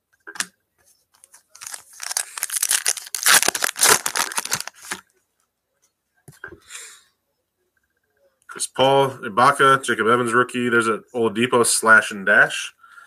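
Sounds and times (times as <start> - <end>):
foil wrapper tearing and crinkling: 1.5 - 5.0.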